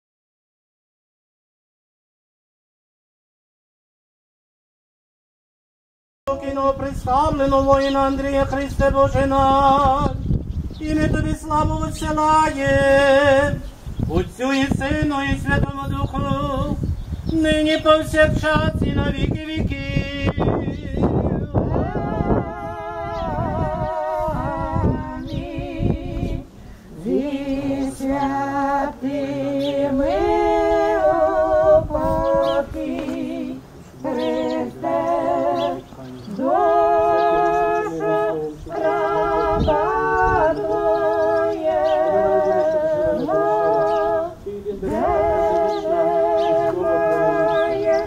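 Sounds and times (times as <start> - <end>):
women singing in harmony: 19.6 - 48.0.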